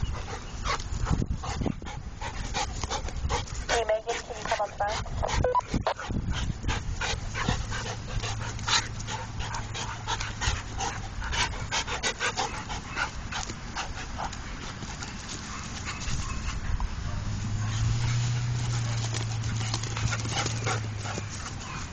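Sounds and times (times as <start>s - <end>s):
dogs panting: 0.0s - 21.9s
dogs scuffling: 6.0s - 21.9s.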